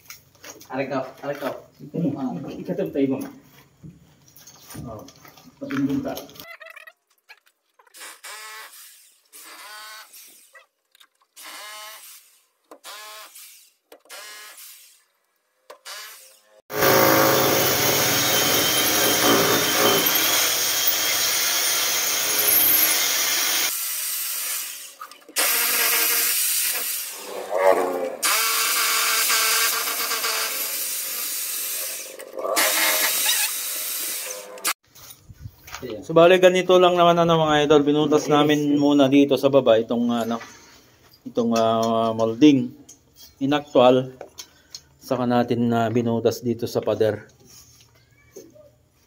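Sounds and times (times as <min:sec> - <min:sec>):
hammer drill boring into concrete: 0:11.4 - 0:15.0, 0:15.8 - 0:34.8.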